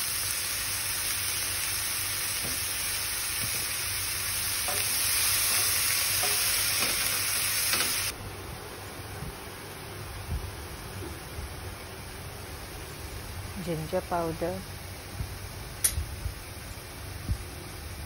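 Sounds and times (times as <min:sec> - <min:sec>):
vegetables sizzling in a hot pan: 0:00.0 - 0:08.1.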